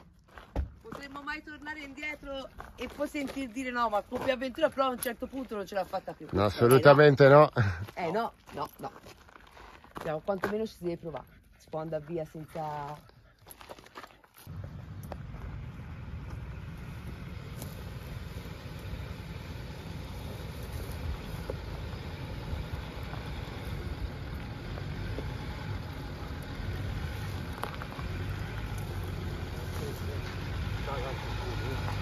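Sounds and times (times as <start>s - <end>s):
engine low rumble: 14.3s - 32.0s.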